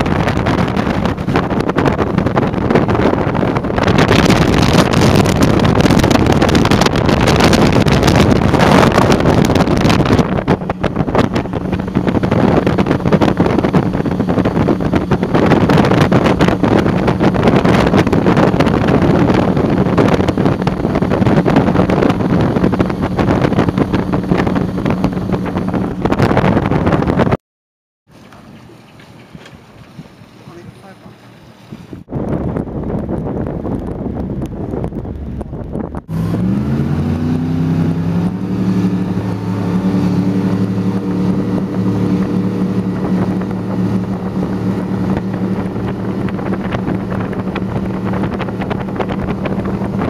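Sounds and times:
motorboat engine: 0:00.0 - 0:27.4, 0:28.1 - 0:50.0
wind buffeting microphone: 0:00.0 - 0:27.4, 0:28.1 - 0:50.0
rushing water: 0:28.1 - 0:32.1, 0:36.1 - 0:50.0.

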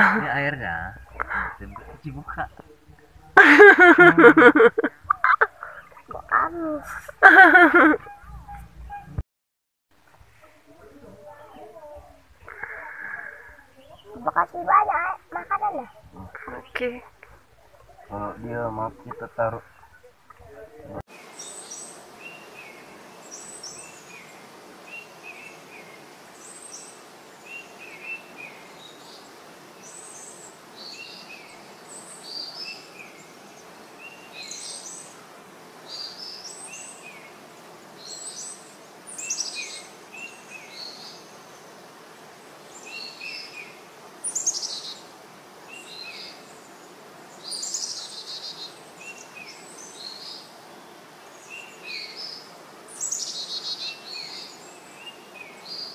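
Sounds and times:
birds chirping: 0:00.0 - 0:09.2, 0:10.1 - 0:55.9
faint background hiss: 0:00.0 - 0:09.2, 0:10.0 - 0:55.9.

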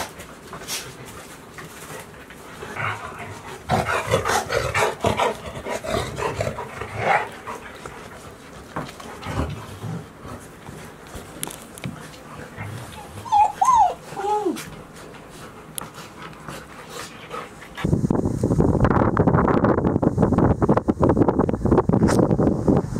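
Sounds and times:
high bending dog whines: 0:12.6 - 0:14.7
puppies yapping: 0:12.8 - 0:14.6.

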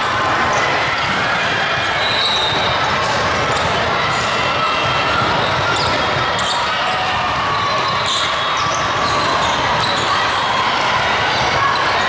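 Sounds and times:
distant voices in a hall: 0:00.0 - 0:12.0.

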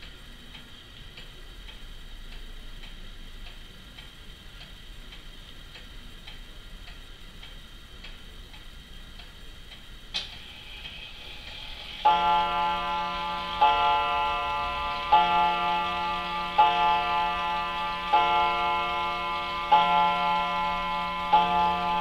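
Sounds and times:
pendulum clock ticking: 0:00.0 - 0:22.0.

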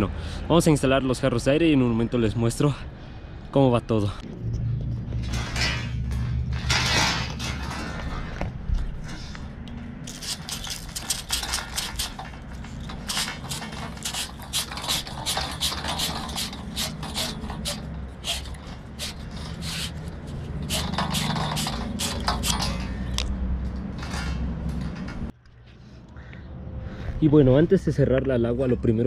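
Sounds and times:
tubing cutter scraping copper pipe: 0:10.0 - 0:23.1.

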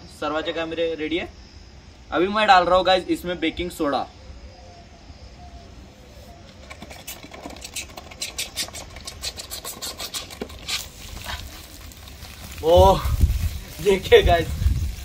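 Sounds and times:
foam spraying from bottle: 0:06.9 - 0:15.0
soda fizzing and crackling: 0:09.3 - 0:15.0.

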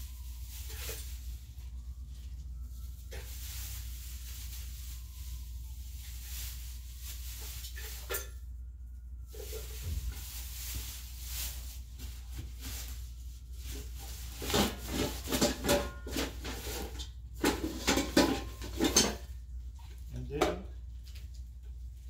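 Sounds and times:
items rustling and scraping: 0:00.0 - 0:22.0.

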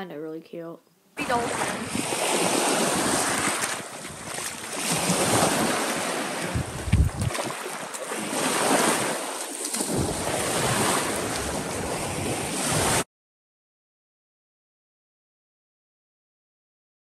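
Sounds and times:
lake waves washing onto shore: 0:01.2 - 0:13.0
wind buffeting microphone: 0:01.3 - 0:07.7.

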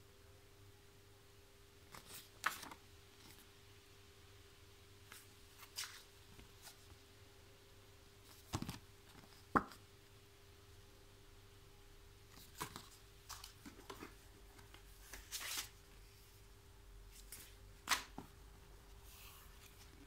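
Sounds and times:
faint steady hum: 0:00.0 - 0:20.0
paper leaflets rustling: 0:01.9 - 0:03.5, 0:12.3 - 0:15.9
sharp slap of paper: 0:17.8 - 0:18.2.

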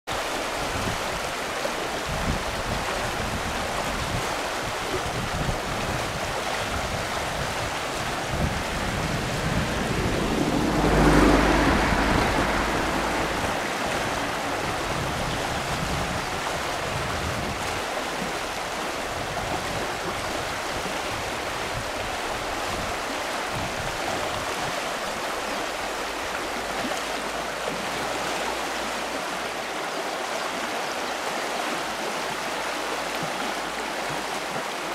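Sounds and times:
river rushing over stones: 0:00.1 - 0:34.9
deep swelling rumble: 0:07.8 - 0:16.2.

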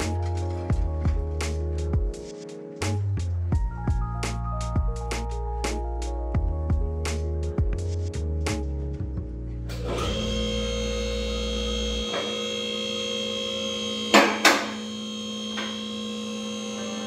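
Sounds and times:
electrical hum: 0:09.7 - 0:17.0.

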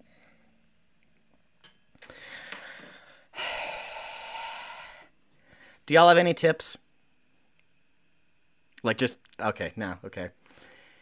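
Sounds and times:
man breathing: 0:02.0 - 0:05.9, 0:10.4 - 0:11.0.

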